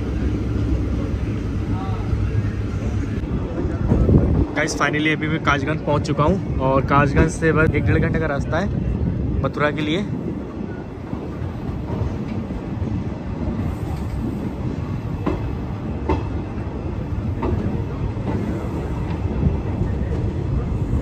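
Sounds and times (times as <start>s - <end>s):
train coach rumbling: 0.0s - 21.0s
wheel clacks over rail joints: 15.0s - 16.5s.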